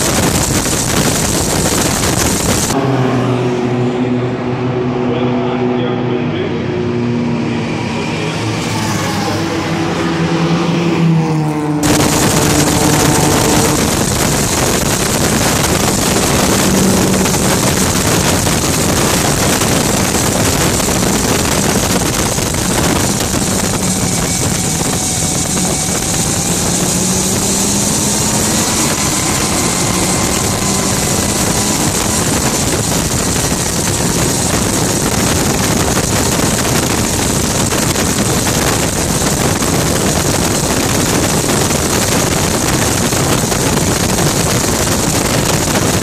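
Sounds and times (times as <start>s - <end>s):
heavy wind rush: 0.0s - 46.0s
turbine whine: 0.0s - 46.0s
turbine car passing by: 2.7s - 38.4s.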